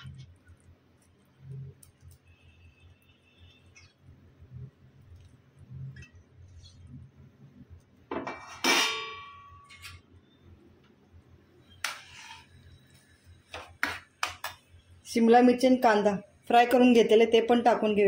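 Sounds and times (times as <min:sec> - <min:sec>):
ringing metallic clang: 0:08.3 - 0:10.0
metal plate scraping: 0:11.8 - 0:12.6
spatula scraping pan: 0:11.8 - 0:12.6.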